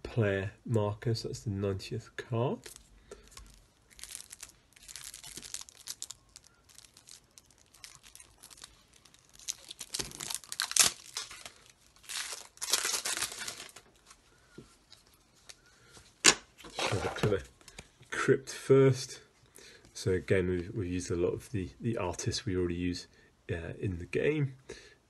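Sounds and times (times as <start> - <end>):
plastic wrap crinkling and tearing: 2.6 - 14.2.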